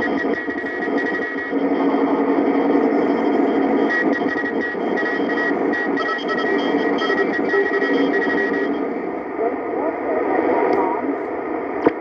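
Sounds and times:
morse code tones: 0:00.0 - 0:09.1
radio band noise hissing: 0:00.0 - 0:12.0.

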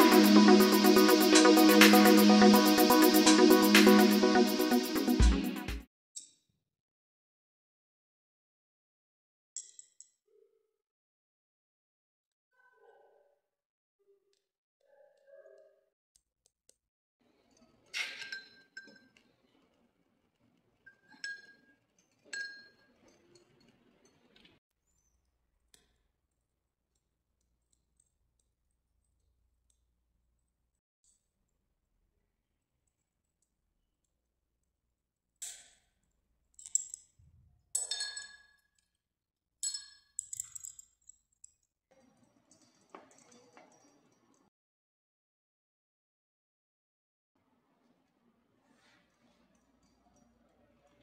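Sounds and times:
glass clinking against glass: 0:18.0 - 0:19.2, 0:21.0 - 0:22.9, 0:37.8 - 0:38.5, 0:39.6 - 0:40.7.

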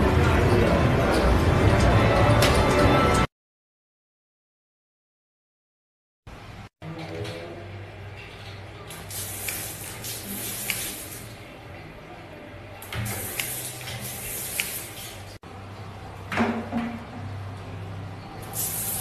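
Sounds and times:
water spraying on tiles: 0:08.9 - 0:11.4, 0:12.9 - 0:15.4, 0:18.4 - 0:19.0.

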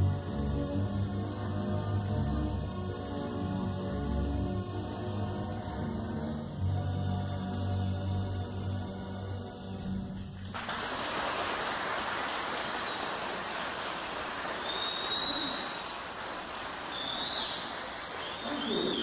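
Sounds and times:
steady rush of noise: 0:00.0 - 0:19.0
high whistling chirps: 0:12.4 - 0:13.4, 0:14.4 - 0:19.0.

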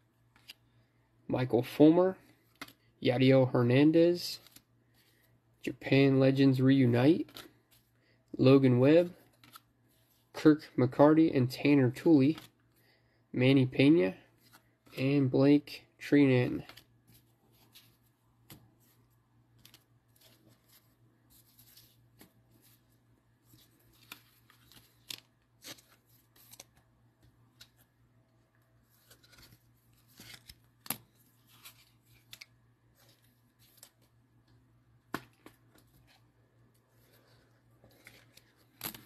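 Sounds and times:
cards rustling and sliding: 0:02.2 - 0:02.9, 0:04.3 - 0:05.4, 0:07.0 - 0:08.0, 0:09.0 - 0:10.4, 0:12.2 - 0:12.8, 0:14.3 - 0:15.0, 0:16.4 - 0:28.0, 0:28.6 - 0:39.0.

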